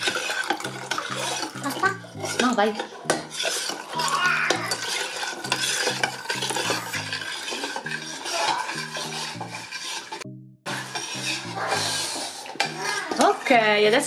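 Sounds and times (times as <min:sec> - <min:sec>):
milk pouring from bottle: 0:00.0 - 0:02.4
metal spoon scraping saucepan: 0:00.0 - 0:14.0.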